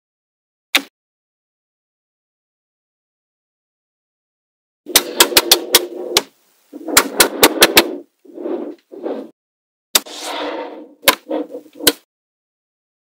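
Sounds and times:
magnetic balls rattling: 0:04.9 - 0:09.0.

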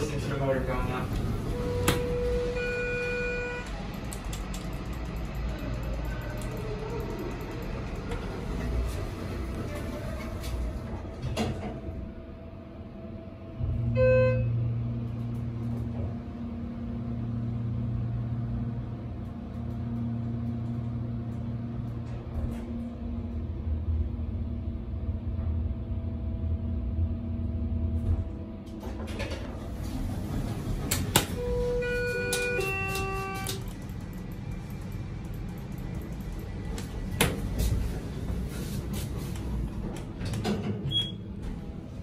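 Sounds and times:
elevator pump motor humming: 0:00.0 - 0:42.0
short beep: 0:01.5 - 0:03.7, 0:13.9 - 0:14.6, 0:31.4 - 0:33.6.

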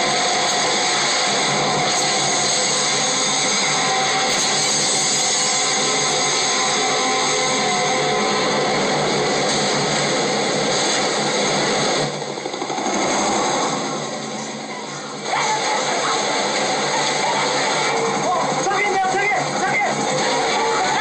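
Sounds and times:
crashing floodwater rush: 0:15.1 - 0:21.0.

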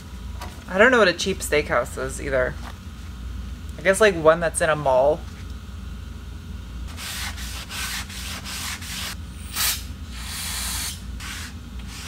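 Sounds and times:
paper towel scrubbing metal: 0:06.9 - 0:09.2.

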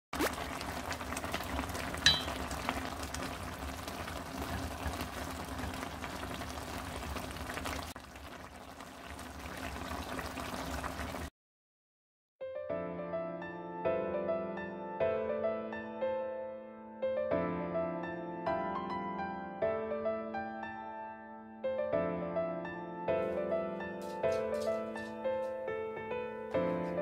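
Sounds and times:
sauce bubbling in a pan: 0:00.2 - 0:11.3
sharp clink: 0:02.1 - 0:02.4
soft piano music: 0:12.4 - 0:27.0.

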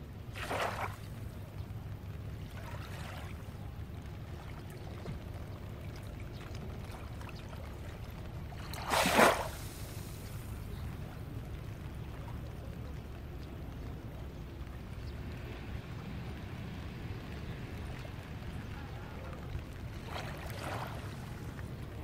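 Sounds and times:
small waves lapping and splashing: 0:00.0 - 0:22.0
steady low rumble: 0:00.0 - 0:22.0.

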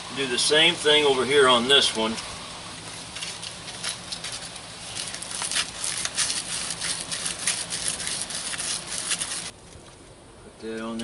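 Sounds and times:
hands handling metal parts: 0:02.1 - 0:09.5.

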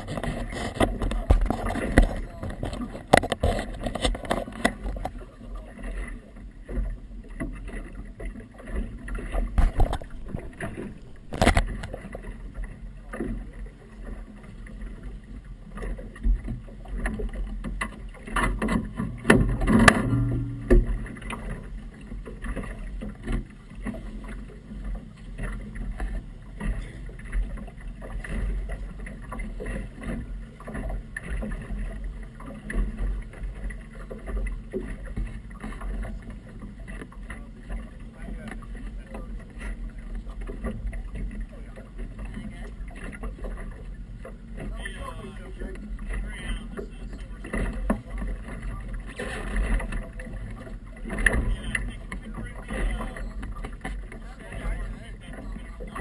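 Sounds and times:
water slapping against boat hull: 0:00.0 - 0:56.0
knocks and thumps: 0:09.4 - 0:12.0, 0:17.7 - 0:21.6
low rumble: 0:09.4 - 0:12.5, 0:19.1 - 0:22.1.

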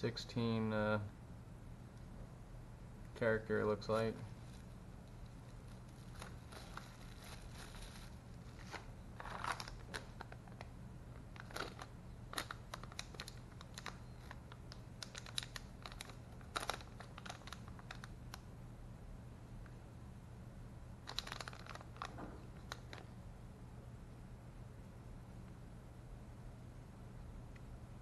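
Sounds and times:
low steady hum: 0:00.0 - 0:28.0
plastic bags crinkling: 0:04.4 - 0:10.7, 0:11.3 - 0:18.1, 0:21.0 - 0:23.1.

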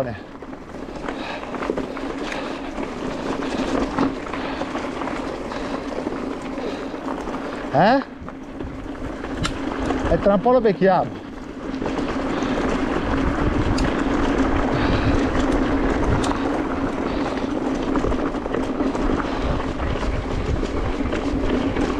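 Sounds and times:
wind buffeting microphone: 0:00.0 - 0:10.4, 0:11.1 - 0:21.9
bike tyres crunching on gravel: 0:00.0 - 0:21.9
small clicks and rattles: 0:00.2 - 0:21.9
steady motor hum: 0:11.1 - 0:21.9.

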